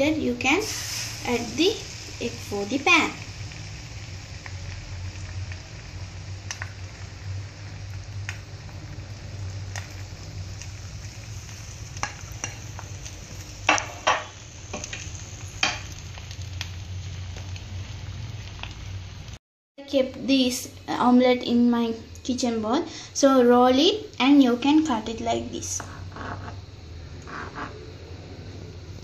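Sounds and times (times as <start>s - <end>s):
egg sizzling in hot oil: 0.0s - 19.4s
sharp oil crackles: 0.0s - 19.4s.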